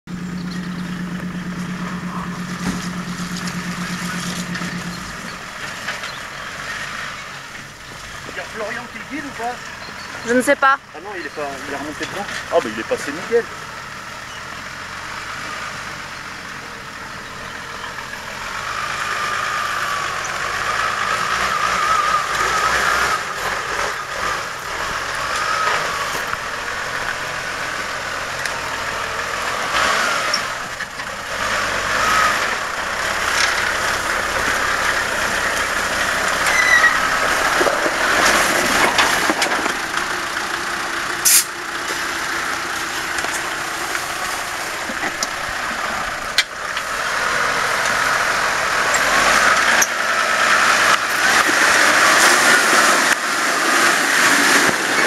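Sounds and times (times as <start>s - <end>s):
truck engine at low speed: 0.0s - 55.0s
wavering whine: 0.1s - 5.4s.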